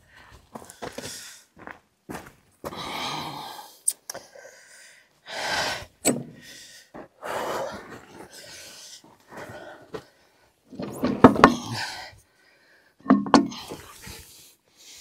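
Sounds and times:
breathy gasps: 0:02.7 - 0:03.8.

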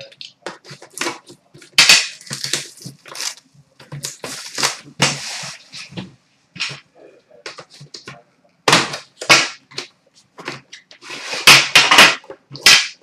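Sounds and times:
packaging tearing and rustling: 0:02.0 - 0:03.4.

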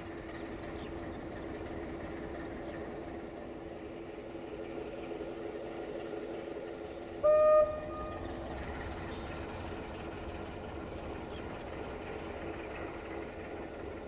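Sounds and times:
diesel engine idling: 0:00.0 - 0:14.0
locomotive horn blast: 0:07.2 - 0:08.4.

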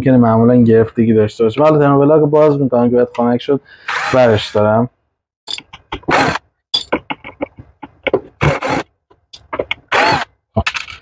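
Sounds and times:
cordless drill spinning: 0:03.9 - 0:04.6, 0:06.1 - 0:06.4, 0:08.5 - 0:08.8, 0:09.9 - 0:10.3.

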